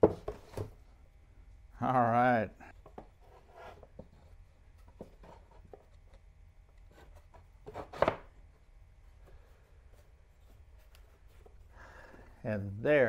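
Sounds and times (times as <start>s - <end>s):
wooden knock and scrape: 0.0s - 0.8s, 2.8s - 6.0s, 6.9s - 8.3s.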